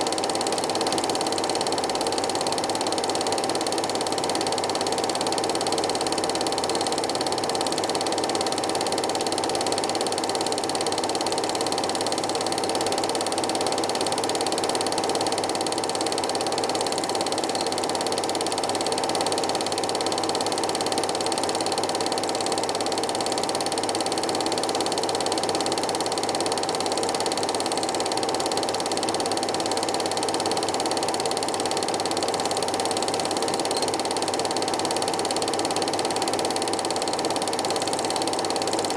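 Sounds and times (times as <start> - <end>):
film projector whirring: 0.0 - 38.9
film advance clatter: 33.3 - 34.2.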